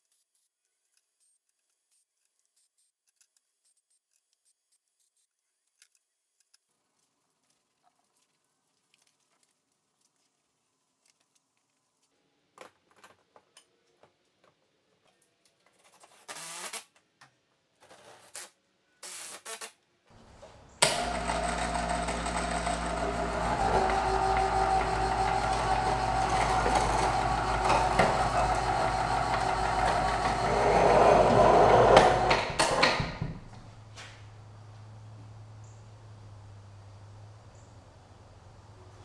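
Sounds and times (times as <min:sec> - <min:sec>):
electric hoist motor hum: 0:20.2 - 0:33.6.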